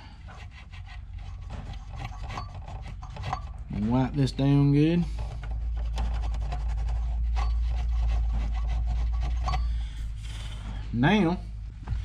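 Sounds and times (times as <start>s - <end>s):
low handling rumble: 0.0s - 12.0s
cloth rubbing on circuit board: 0.3s - 4.2s, 5.2s - 9.8s.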